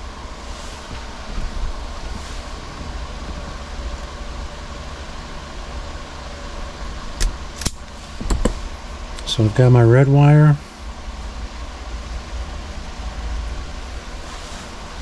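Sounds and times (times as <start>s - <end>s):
wire stripper clicks: 7.2s - 8.6s.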